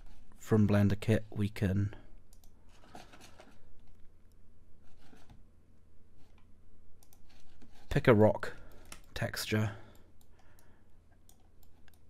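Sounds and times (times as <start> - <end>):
person talking: 0.4 - 2.1, 7.8 - 10.0
computer mouse clicks: 2.3 - 2.6, 6.3 - 7.4, 8.7 - 9.2, 9.9 - 12.0.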